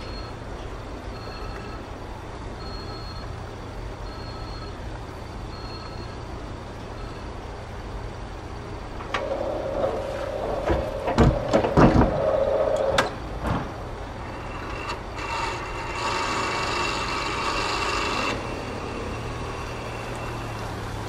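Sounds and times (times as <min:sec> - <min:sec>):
crossing warning tone: 0:00.0 - 0:13.4, 0:14.1 - 0:21.0
barrier arm drive running: 0:00.0 - 0:21.0
loud metal clunks: 0:09.0 - 0:14.0.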